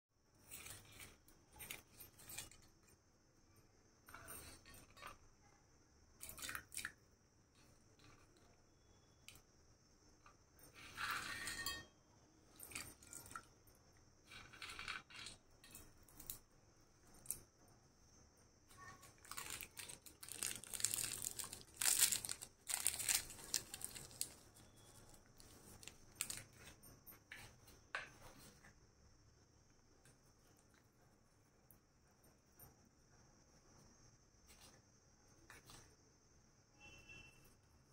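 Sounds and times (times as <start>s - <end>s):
spices rustling: 14.2s - 28.8s.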